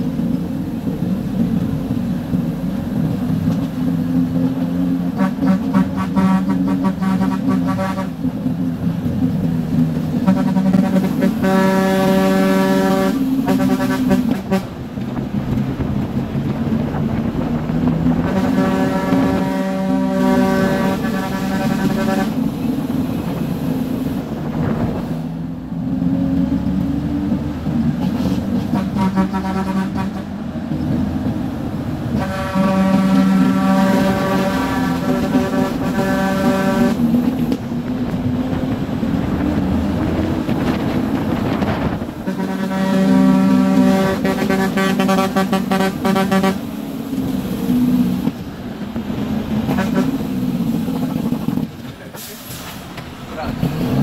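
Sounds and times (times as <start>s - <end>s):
truck engine running: 0.0s - 54.0s
truck horn blasts: 5.0s - 8.4s, 10.2s - 14.8s, 18.2s - 22.6s, 28.6s - 30.4s, 32.1s - 37.3s, 42.2s - 46.8s, 49.7s - 50.3s.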